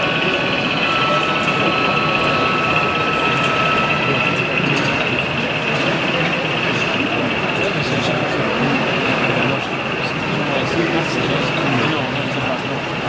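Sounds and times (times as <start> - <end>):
high-pitched hum: 0.0 - 12.2
busy exhibition hall noise: 0.0 - 13.0.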